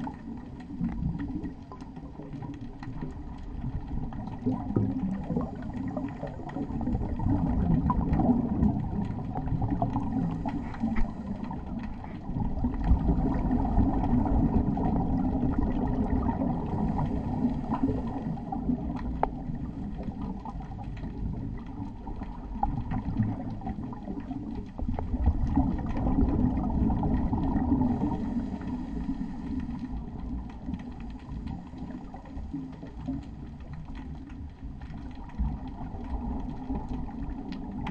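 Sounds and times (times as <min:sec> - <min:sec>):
rumbling bubble exhalations: 0:00.0 - 0:37.9
scuba regulator breathing: 0:10.2 - 0:12.2, 0:28.0 - 0:30.1.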